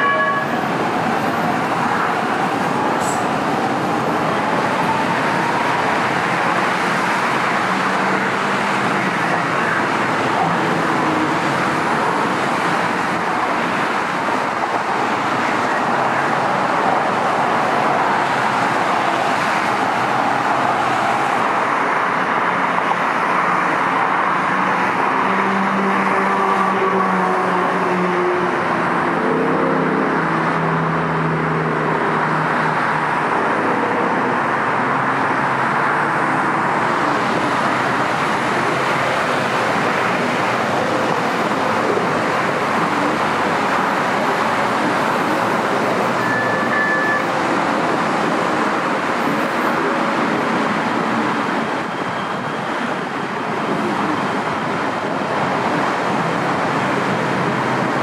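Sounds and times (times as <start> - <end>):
freeway traffic noise: 0.0 - 58.0.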